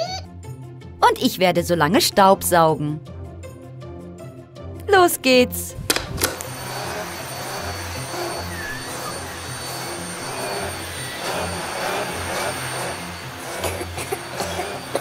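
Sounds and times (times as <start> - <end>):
vacuum cleaner running on rug: 5.9 - 15.0.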